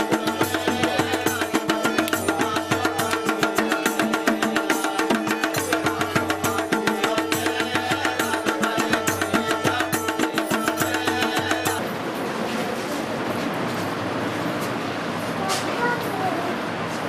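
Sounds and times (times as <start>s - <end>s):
fast even drumbeats: 0.0s - 11.8s.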